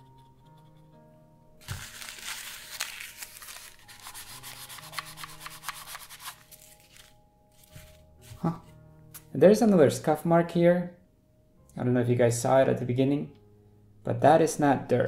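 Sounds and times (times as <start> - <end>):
faint background music: 0.0 - 15.0.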